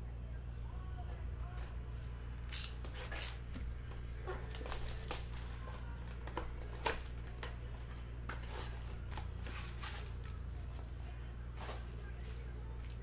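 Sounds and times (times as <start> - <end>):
steady low hum: 0.0 - 13.0
plastic wrap crinkling and tearing: 4.3 - 7.5.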